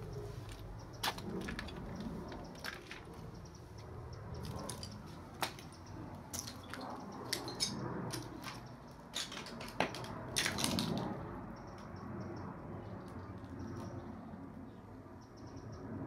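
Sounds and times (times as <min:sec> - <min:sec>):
footsteps crunching on broken glass: 0:06.3 - 0:11.0.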